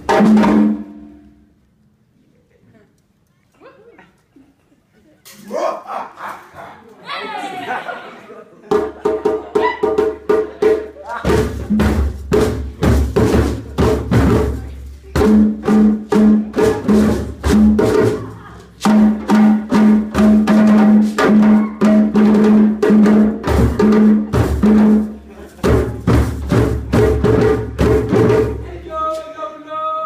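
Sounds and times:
djembe drums playing: 0.0 - 1.2, 8.7 - 28.9.

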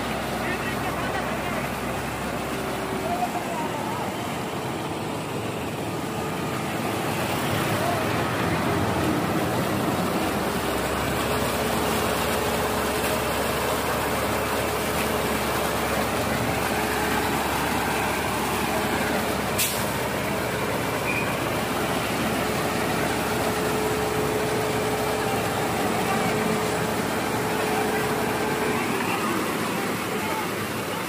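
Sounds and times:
concrete mixer truck running: 0.0 - 31.0
wet concrete pouring down chute: 0.0 - 31.0.

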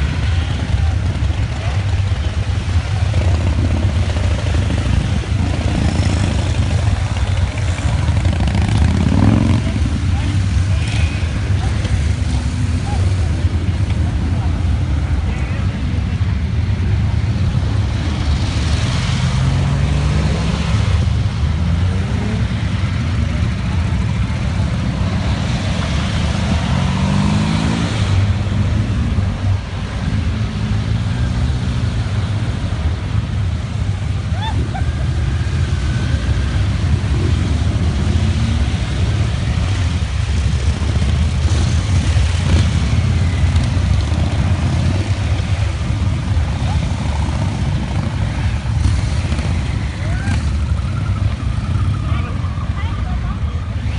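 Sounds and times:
motorcycle engines rumbling: 0.0 - 53.9
engine accelerating away: 2.9 - 10.2, 18.4 - 24.0, 25.2 - 28.8.

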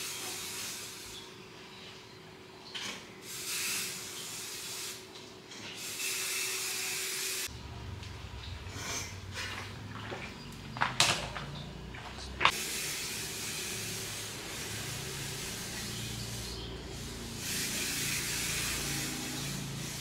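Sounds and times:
spray hissing: 3.2 - 5.0, 12.5 - 20.0.

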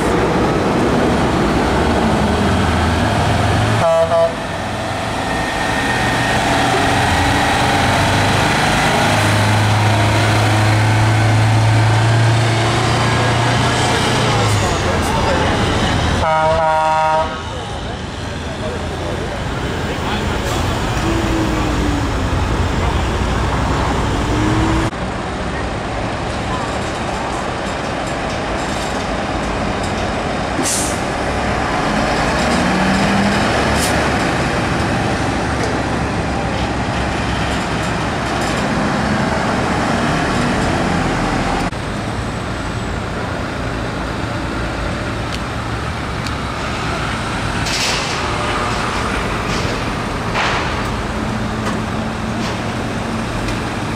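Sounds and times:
diesel truck engine drone: 0.0 - 27.6, 28.2 - 53.9
air brakes hissing: 30.6 - 31.0.

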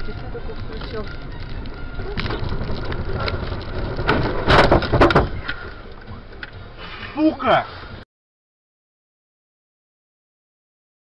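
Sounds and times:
road noise: 0.0 - 8.0
vehicle crash impact: 1.4 - 5.8.

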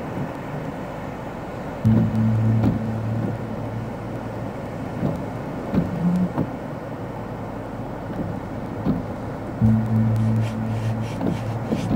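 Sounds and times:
low steady hum: 0.0 - 11.9
wind: 0.0 - 11.9.

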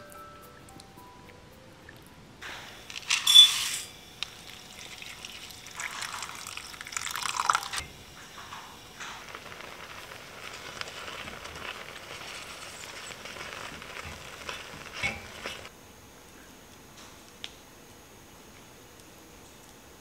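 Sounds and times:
porridge sizzling and bubbling: 2.4 - 17.7.

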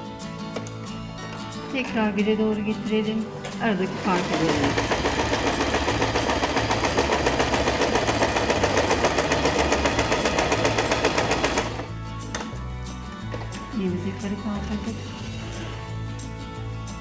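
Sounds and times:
sewing machine stitching: 3.8 - 11.9.

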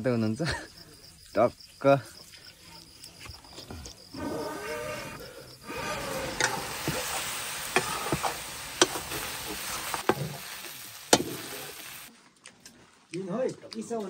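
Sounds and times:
meat sizzling in a wok: 5.6 - 12.1
ladle knocking and scraping a wok: 5.8 - 11.9.

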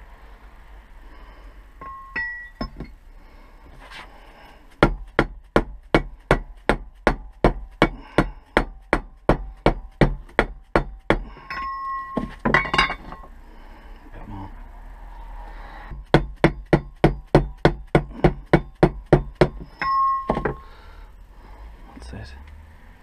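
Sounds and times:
light metal clinks: 1.8 - 2.9.

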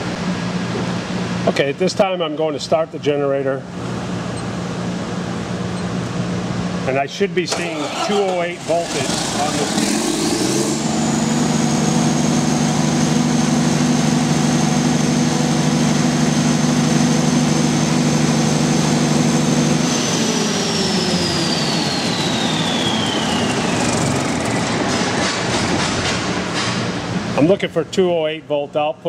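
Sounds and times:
diesel generator running: 0.0 - 29.0
high whine falling in pitch: 8.6 - 25.5.

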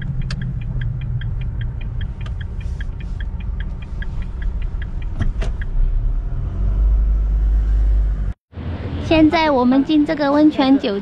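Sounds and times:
turn signal ticking: 0.0 - 6.4
engine humming low: 0.0 - 11.0.

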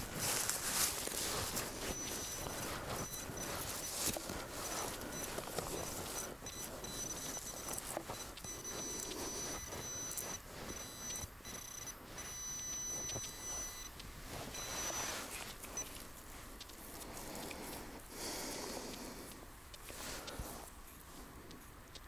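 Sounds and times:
scuffing noises: 0.0 - 12.2
metal detector signal tone: 1.8 - 16.0.

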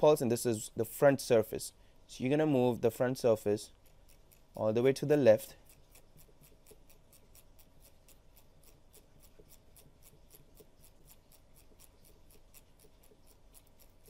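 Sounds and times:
faint even ticking: 3.2 - 14.0.

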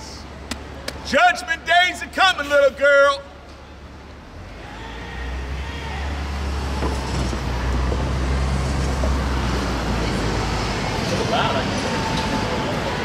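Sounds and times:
vehicle engine rumbling: 3.2 - 13.0.

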